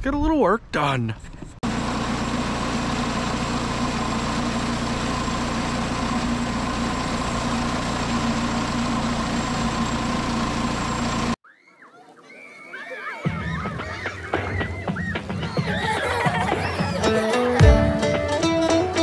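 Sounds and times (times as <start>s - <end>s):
engine running steadily: 1.3s - 11.4s.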